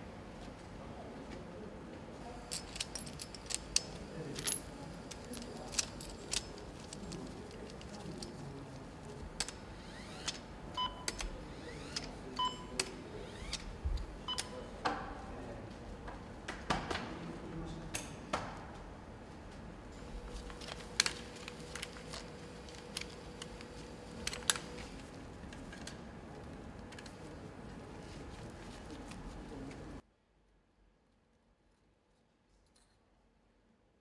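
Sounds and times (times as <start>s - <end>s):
metal parts clicking on engine: 2.5s - 8.4s.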